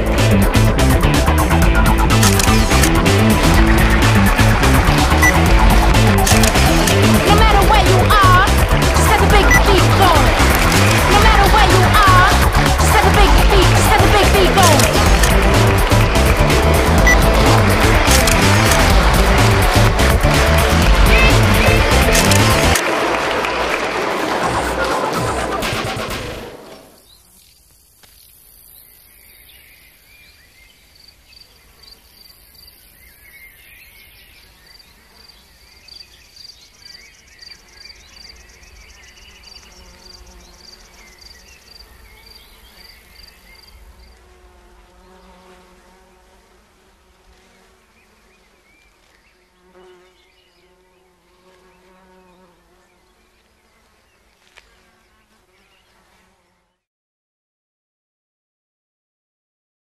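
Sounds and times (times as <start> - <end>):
insects chirping: 26.7 - 52.4
faint insect buzz: 26.7 - 56.9.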